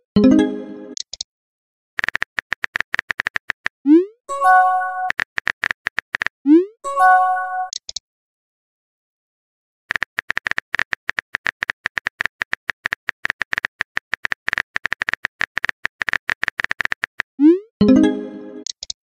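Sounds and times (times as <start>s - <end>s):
phone keyboard typing clicks: 2.0s - 3.7s, 5.1s - 6.3s, 9.9s - 17.3s.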